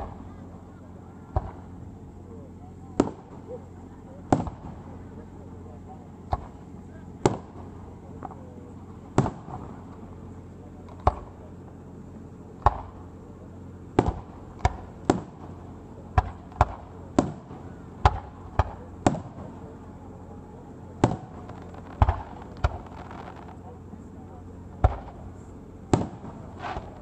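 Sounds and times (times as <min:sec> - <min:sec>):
firework shells bursting: 0:21.0 - 0:23.6.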